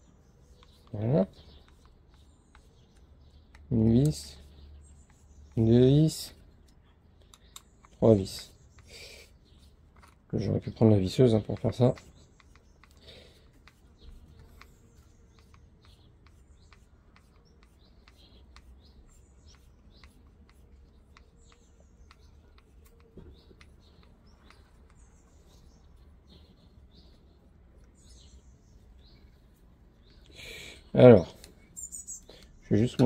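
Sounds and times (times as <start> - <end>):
faint small clicks: 6.6 - 8.9.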